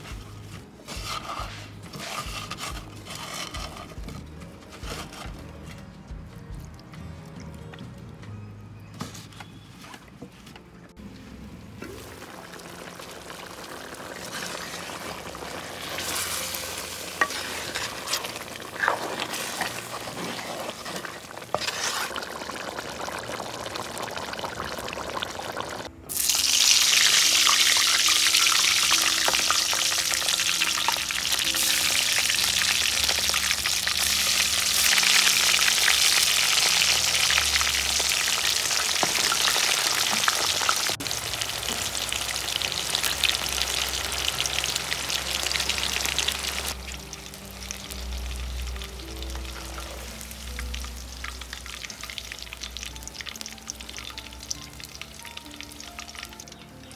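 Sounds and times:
curry being stirred: 0:00.0 - 0:05.8, 0:12.2 - 0:25.8
eggplants deep-frying in oil: 0:11.5 - 0:56.9.

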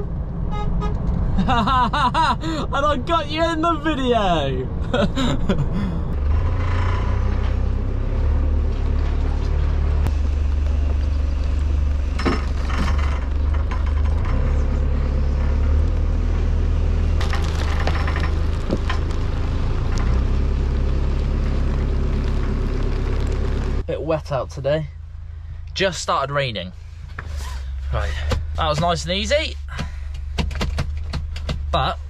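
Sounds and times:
diesel engine running: 0:00.0 - 0:32.0.

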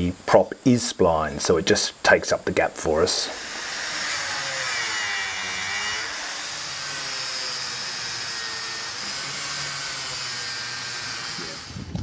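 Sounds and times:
angle grinder grinding metal: 0:03.1 - 0:12.0.

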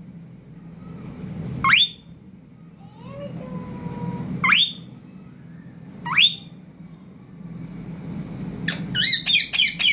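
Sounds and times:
low steady hum: 0:00.0 - 0:09.9
parakeet calls: 0:06.0 - 0:06.5, 0:08.6 - 0:09.9.

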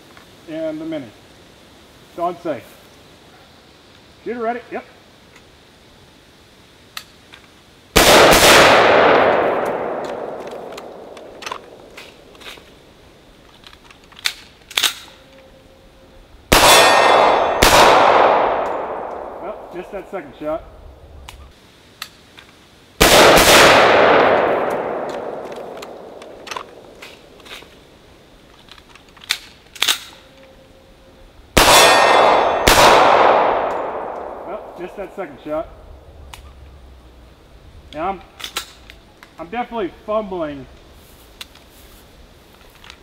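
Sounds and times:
gunshot: 0:08.0 - 0:11.8, 0:16.5 - 0:19.8, 0:23.0 - 0:26.8, 0:31.6 - 0:34.9
rifle shot echoing: 0:08.0 - 0:12.4, 0:16.5 - 0:20.3, 0:23.0 - 0:27.4, 0:31.6 - 0:35.3
rifle handling clicks: 0:09.6 - 0:12.7, 0:13.4 - 0:15.5, 0:24.3 - 0:27.8, 0:28.5 - 0:30.5, 0:38.4 - 0:39.3.

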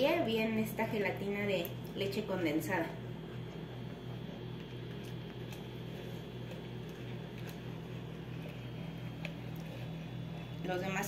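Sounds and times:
low steady hum: 0:00.0 - 0:11.0
spatula stirring in a pot: 0:03.1 - 0:11.0.

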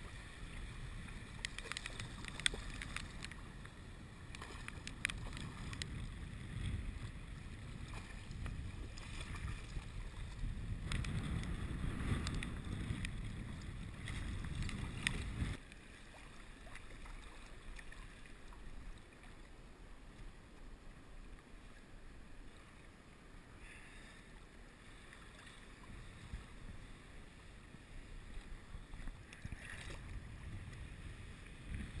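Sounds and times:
wind buffeting microphone: 0:00.0 - 0:15.6, 0:27.7 - 0:32.0
water splashing and lapping: 0:00.0 - 0:20.5, 0:24.4 - 0:32.0.

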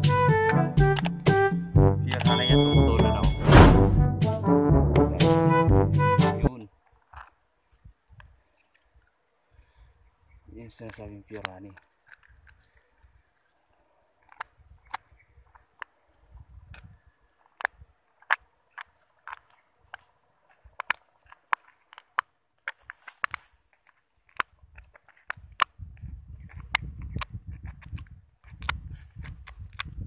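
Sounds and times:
sharp irregular clicks and snaps: 0:10.7 - 0:12.8.

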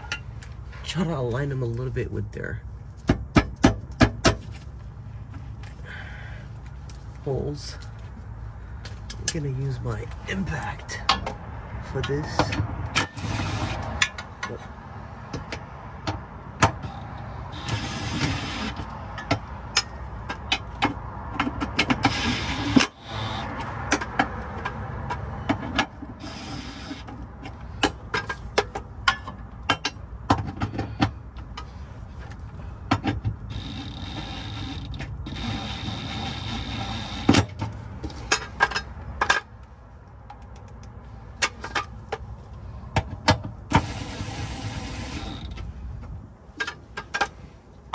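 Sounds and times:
impact wrench bursts: 0:16.6 - 0:19.2, 0:21.7 - 0:24.1, 0:26.1 - 0:27.2, 0:33.4 - 0:37.6
metal clanks and clicks: 0:17.6 - 0:26.3, 0:27.0 - 0:42.3, 0:45.1 - 0:47.9.

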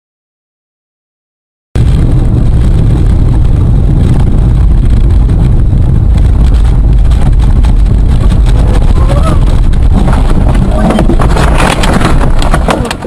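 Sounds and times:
car engine and road rumble: 0:02.0 - 0:13.0.

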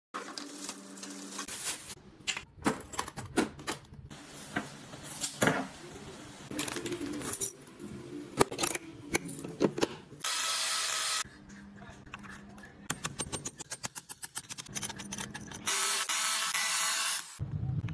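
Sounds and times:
metal tools clattering in case: 0:06.5 - 0:07.6.

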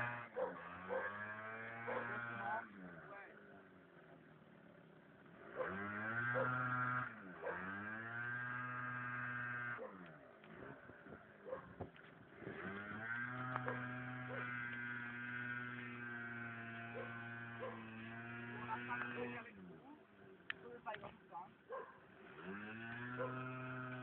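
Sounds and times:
motor whirring: 0:12.4 - 0:19.6.

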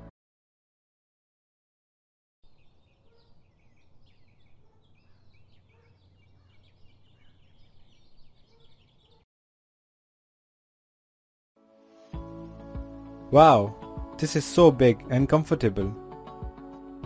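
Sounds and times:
birds chirping and twittering: 0:02.4 - 0:09.3.

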